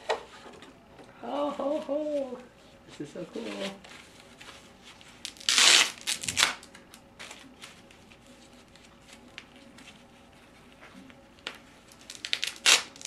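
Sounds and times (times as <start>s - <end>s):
packing wrap rustling: 3.4s - 10.1s, 11.4s - 13.0s.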